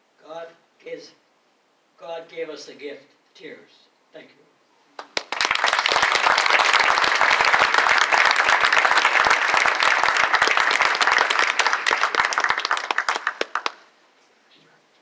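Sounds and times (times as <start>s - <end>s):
audience applauding: 5.0s - 13.9s.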